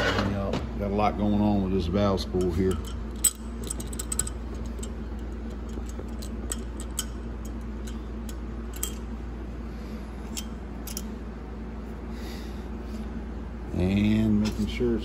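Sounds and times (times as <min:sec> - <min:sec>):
low hum: 0:00.0 - 0:15.0
metal parts clicking: 0:02.4 - 0:09.0, 0:10.3 - 0:11.1.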